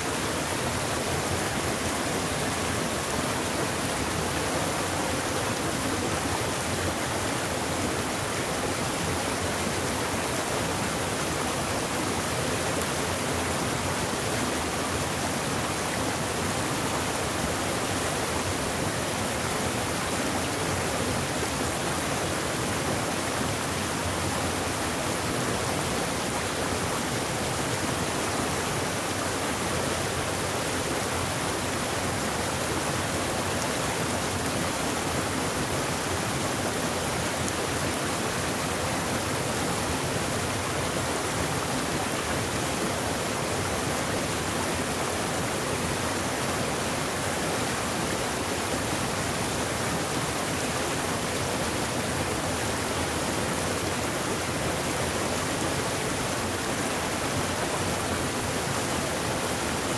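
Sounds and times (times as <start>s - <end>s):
stream rushing over boulders: 0.0s - 59.9s.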